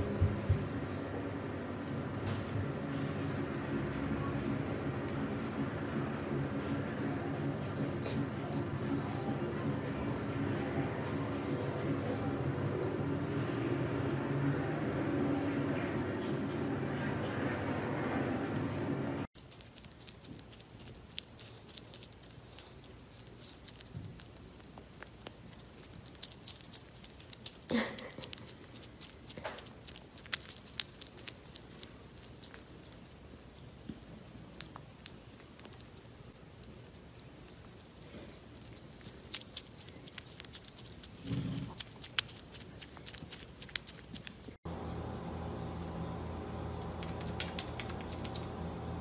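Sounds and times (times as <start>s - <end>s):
animal chewing wet smacks: 19.4s - 44.6s, 46.8s - 48.6s.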